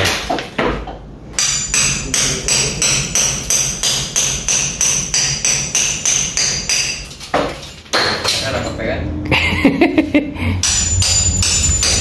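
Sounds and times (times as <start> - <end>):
hammering on metal: 1.3 - 8.4, 10.6 - 12.0
high metallic ring: 10.6 - 12.0.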